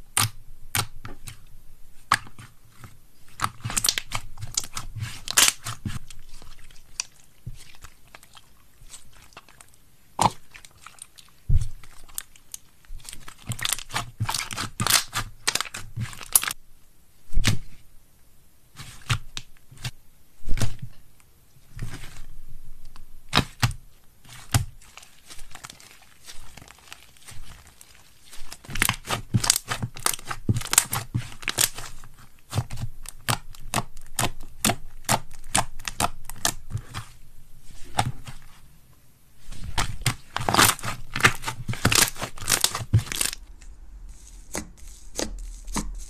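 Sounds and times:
slime crackling and popping: 3.3s - 16.6s, 24.3s - 37.2s, 39.6s - 46.0s.

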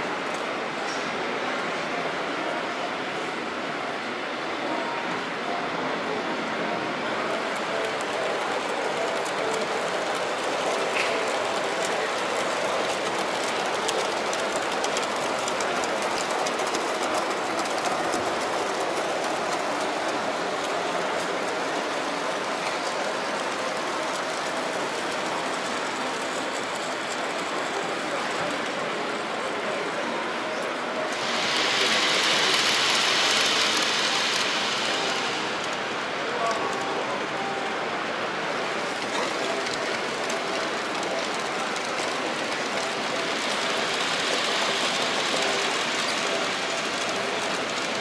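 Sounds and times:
exhibition hall background noise: 0.0s - 48.0s
model trains running on track: 0.0s - 48.0s.

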